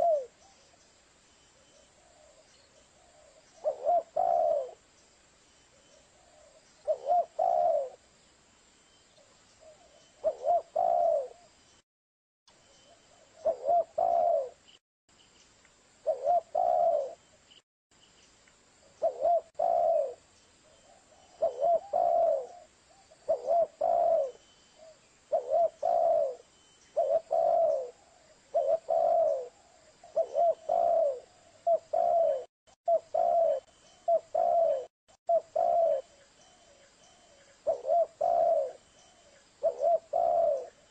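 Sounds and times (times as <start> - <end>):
dove cooing: 0.0 - 0.6, 2.0 - 4.8, 6.1 - 8.0, 9.6 - 11.5, 13.1 - 14.6, 16.0 - 17.2, 19.0 - 20.2, 20.8 - 40.9.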